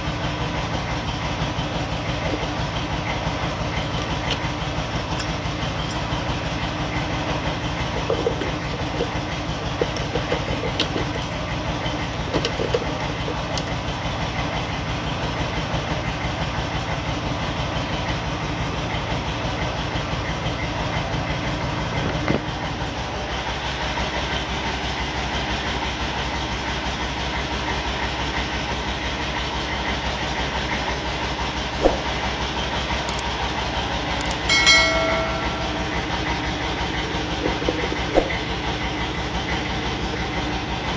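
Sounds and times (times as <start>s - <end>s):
low mechanical drone: 30.7s - 40.9s.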